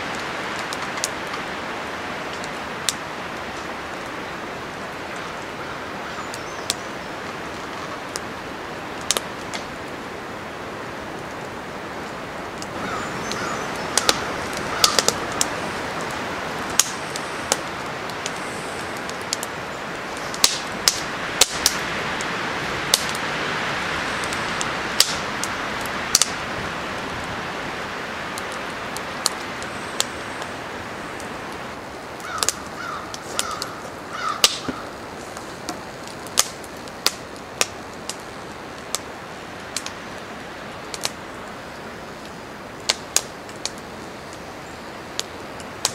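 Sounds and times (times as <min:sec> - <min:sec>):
fire pops: 0:00.0 - 0:23.4, 0:24.0 - 0:45.9
wind: 0:00.0 - 0:45.9
wood fire crackling: 0:00.0 - 0:45.9
bird calling: 0:05.1 - 0:08.1, 0:12.7 - 0:16.0, 0:32.2 - 0:35.1.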